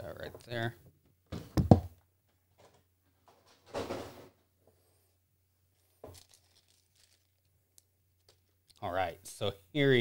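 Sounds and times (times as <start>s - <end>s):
plastic packaging rustle: 5.7s - 7.5s.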